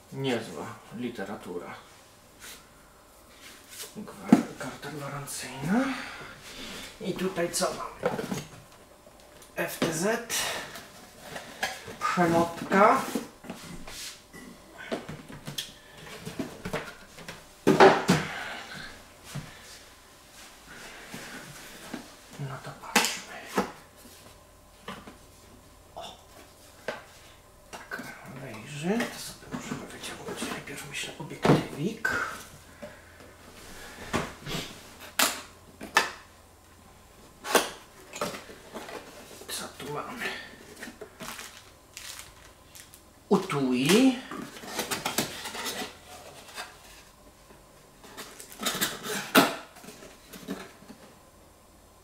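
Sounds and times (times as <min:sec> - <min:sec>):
cardboard packaging handled: 0:40.7 - 0:43.0.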